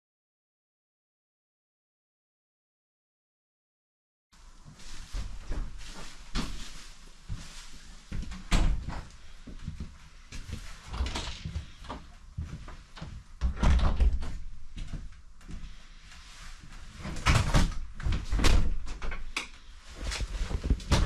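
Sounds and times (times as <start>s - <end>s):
doors opening and shutting: 8.4s - 9.1s, 10.7s - 12.1s, 12.9s - 14.6s, 17.0s - 21.0s.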